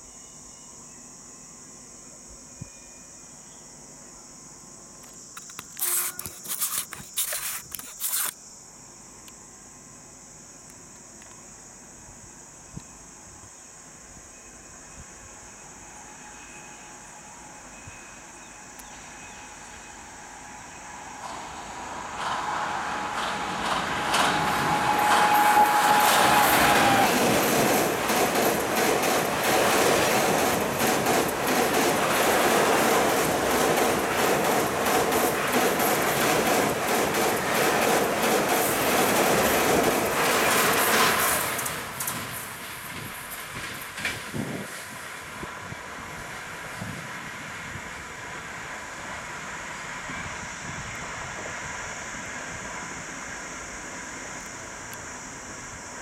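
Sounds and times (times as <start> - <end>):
crickets chirring: 0.0 - 56.0
thin steady locomotive tone: 0.0 - 56.0
train wheels rushing on rail: 17.5 - 55.7
rapid clicks from the track: 22.1 - 44.8.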